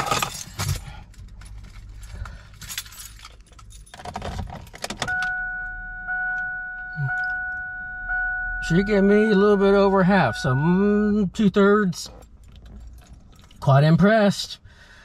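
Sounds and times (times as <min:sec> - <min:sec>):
car keys jangling: 0:00.0 - 0:10.6, 0:12.0 - 0:13.9
two-note dashboard chime: 0:05.1 - 0:11.1.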